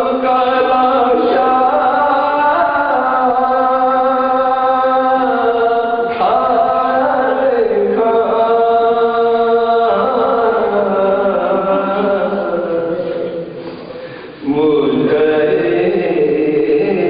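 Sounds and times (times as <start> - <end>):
man singing slow lament: 0.0 - 17.0.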